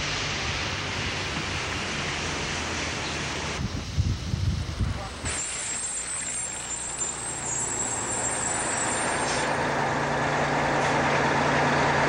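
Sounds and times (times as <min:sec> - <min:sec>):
heavy vehicle engine humming: 0:00.0 - 0:12.0
rushing traffic noise: 0:00.0 - 0:12.0
thin high whine: 0:05.2 - 0:10.2.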